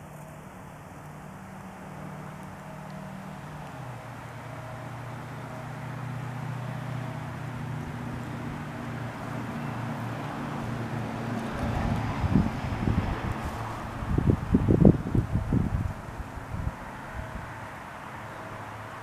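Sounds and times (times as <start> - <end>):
wind rumble on microphone: 10.6 - 17.6.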